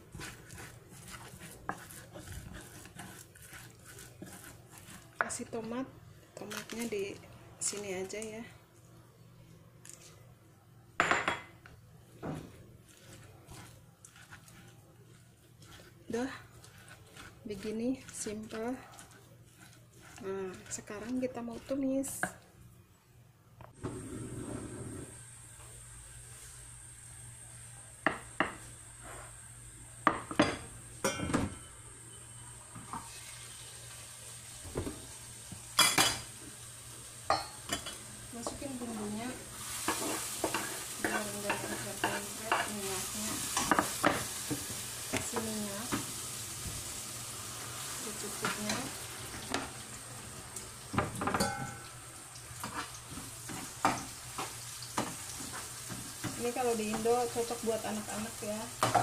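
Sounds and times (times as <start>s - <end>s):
paste sizzling in hot oil: 0.0s - 5.6s, 12.9s - 22.2s, 33.0s - 59.0s
spatula scraping pan: 0.0s - 5.8s, 12.9s - 22.3s, 37.3s - 45.6s, 52.6s - 59.0s.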